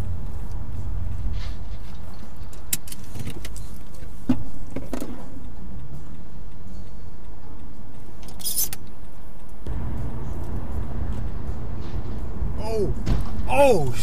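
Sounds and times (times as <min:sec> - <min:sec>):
short thump: 0:13.0 - 0:13.5.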